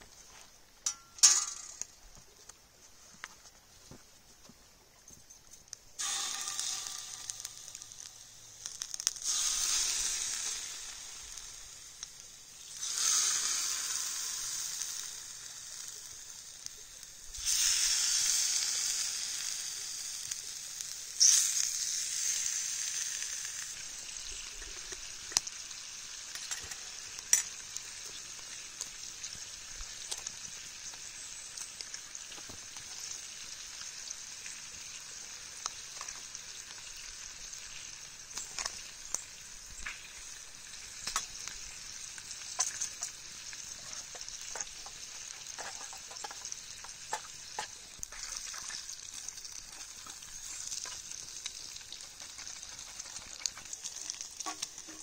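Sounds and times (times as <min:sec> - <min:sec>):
bacon sizzling in a pan: 0:05.7 - 0:55.0
fat popping: 0:43.8 - 0:48.4.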